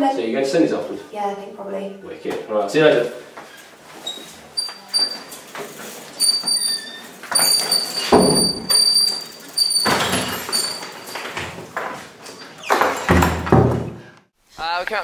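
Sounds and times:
thin high squeal: 4.0s - 5.5s, 6.1s - 11.2s
bicycle bumping door frame: 4.6s - 14.1s.

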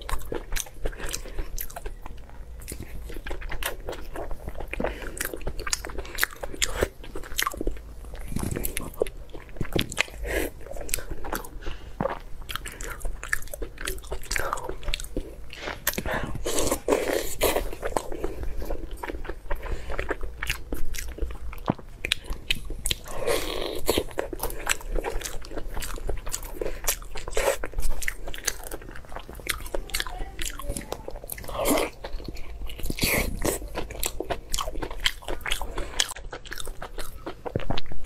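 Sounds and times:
person chewing food: 0.0s - 38.0s.

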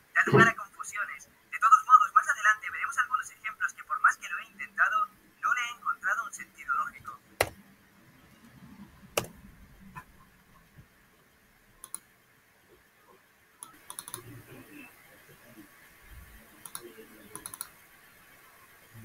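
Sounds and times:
computer mouse clicks: 9.2s - 9.4s, 11.8s - 12.1s, 13.6s - 14.3s, 16.6s - 17.7s.

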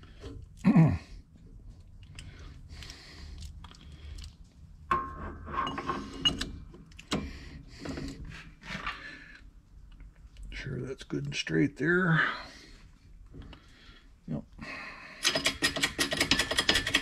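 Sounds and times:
metal clinks and scraping: 4.9s - 6.6s.

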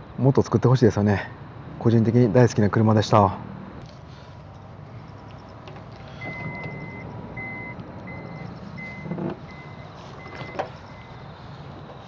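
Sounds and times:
door warning beeps: 6.2s - 11.2s.

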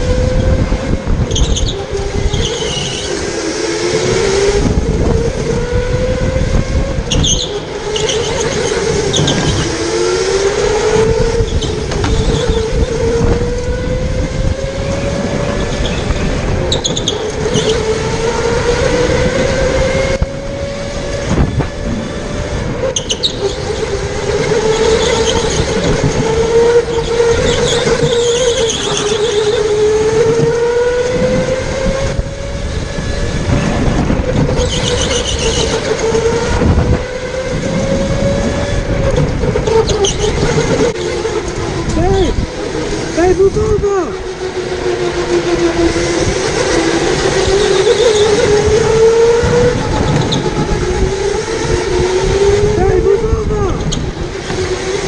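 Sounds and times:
electric motor whining: 0.0s - 55.0s
wind rumbling on microphone: 0.0s - 55.0s
tyre squeals: 1.3s - 3.2s, 7.1s - 9.8s, 11.4s - 13.0s, 15.5s - 17.9s, 22.9s - 23.9s, 24.5s - 29.8s, 34.4s - 36.6s, 39.6s - 42.4s, 47.1s - 50.7s.

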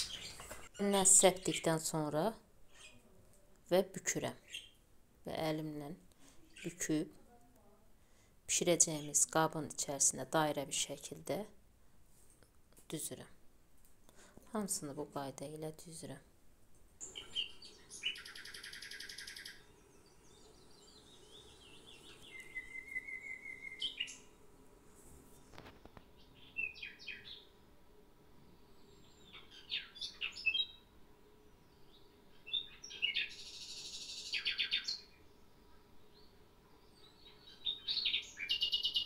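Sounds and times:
songbird chirping and singing: 0.0s - 1.7s, 17.0s - 24.4s, 26.1s - 27.6s, 28.4s - 39.0s.

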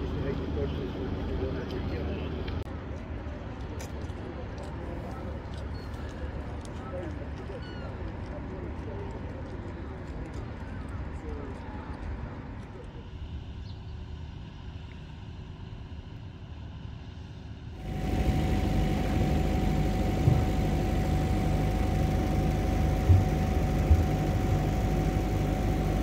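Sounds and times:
generator humming: 17.8s - 26.0s.

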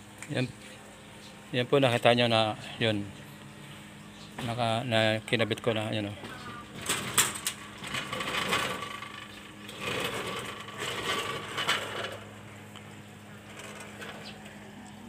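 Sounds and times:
screen door rattling and scraping: 6.2s - 12.4s, 13.4s - 14.7s.

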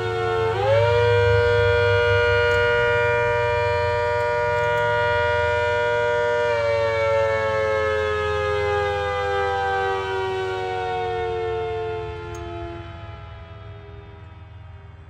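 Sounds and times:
warning siren multi-note tone: 0.0s - 15.0s.

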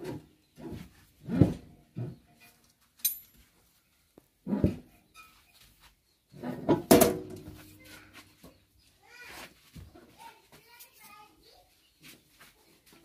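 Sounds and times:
metal knocks and clinks: 3.0s - 3.5s.

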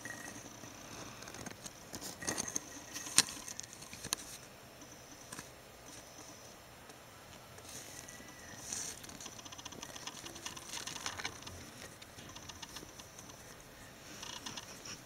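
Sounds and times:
rats clicking and scratching: 0.0s - 6.4s, 7.6s - 15.0s.

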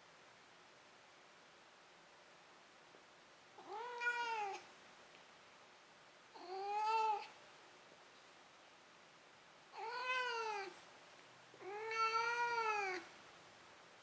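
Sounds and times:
cat meowing: 3.6s - 4.6s, 6.4s - 7.3s, 9.7s - 10.8s, 11.6s - 13.1s.

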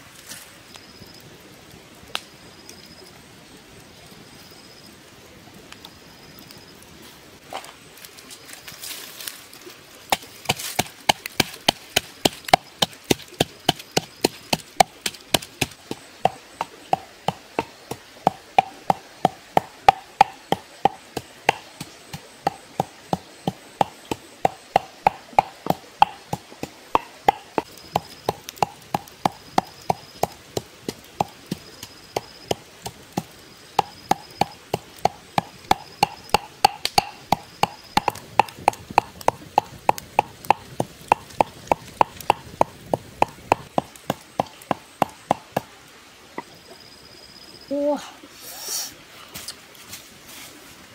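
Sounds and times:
pestle pounding in mortar: 10.1s - 45.7s.

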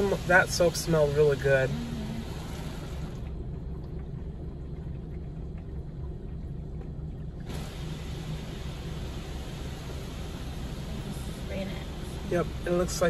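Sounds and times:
water spray hissing on car: 0.0s - 3.3s, 7.5s - 13.0s
car wash low rumble: 0.0s - 13.0s.

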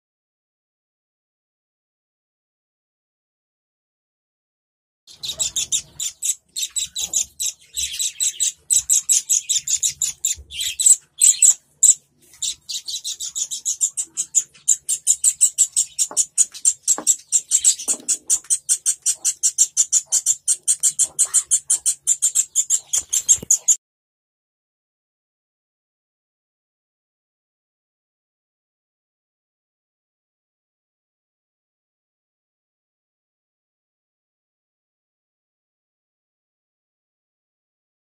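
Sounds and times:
chick chirping rapidly: 5.1s - 23.8s.

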